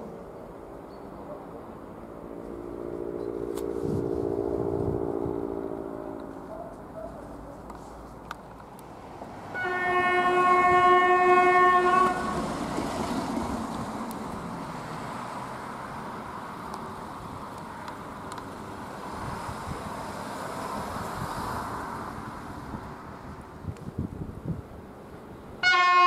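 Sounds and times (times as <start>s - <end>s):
train rumble: 0.0s - 26.0s
locomotive horn blast: 9.5s - 12.5s, 25.6s - 26.0s.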